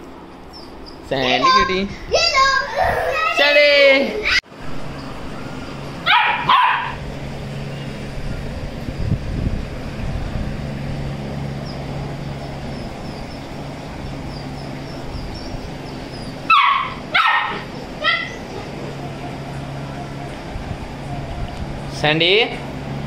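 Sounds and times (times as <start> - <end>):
steady low hum: 4.0 - 23.0
puppy barking: 6.0 - 7.0, 16.4 - 20.3.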